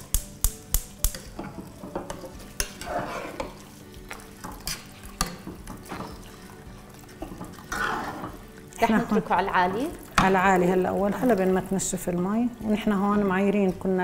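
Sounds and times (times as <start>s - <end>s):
sizzling in a hot pot: 0.0s - 14.0s
spatula stirring and scraping rice: 1.2s - 8.7s
water pouring into a pot: 3.8s - 12.4s.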